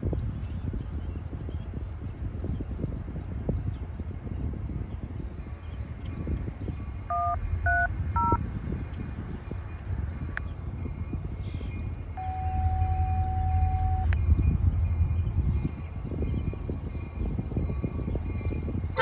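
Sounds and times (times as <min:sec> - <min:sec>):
long steady tone: 0:07.1 - 0:08.4, 0:12.0 - 0:16.0
touch-tone dial beeps: 0:07.1 - 0:08.4
low rumble: 0:11.9 - 0:19.0.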